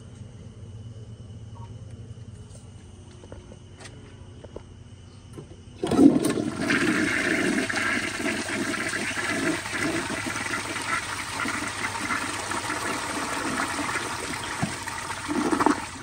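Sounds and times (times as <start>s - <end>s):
toilet flushing water rush: 5.8s - 16.0s.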